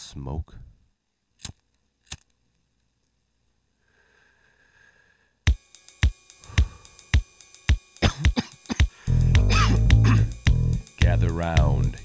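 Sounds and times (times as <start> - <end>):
faint hiss: 3.6 - 12.0
programmed drum beat: 5.5 - 12.0.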